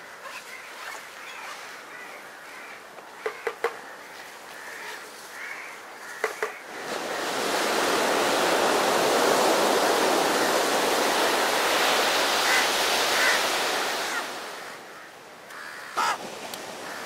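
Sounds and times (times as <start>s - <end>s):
surf breaking on beach: 6.7s - 14.6s
short bird calls: 15.5s - 16.2s.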